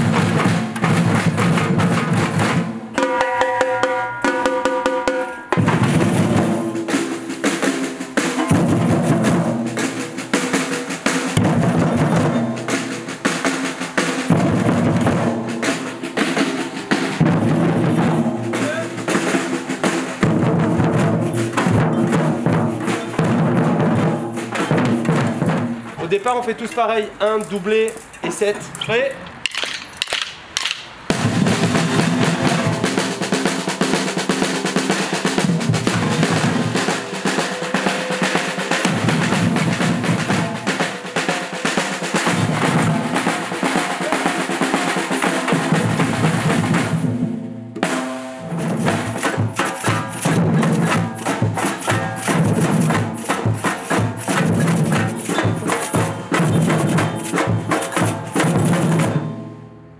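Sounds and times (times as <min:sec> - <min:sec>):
bass drums: 0:00.0 - 0:03.2, 0:04.4 - 0:10.3, 0:16.7 - 0:29.5, 0:30.5 - 0:37.3, 0:42.2 - 0:59.2
samba percussion ensemble: 0:00.0 - 0:59.7.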